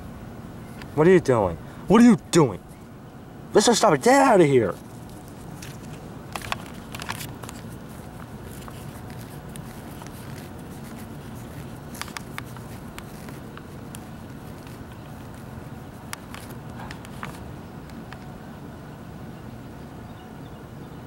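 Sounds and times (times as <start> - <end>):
outdoor background noise: 0.0 - 21.0
light clicks and crunches: 4.7 - 18.3.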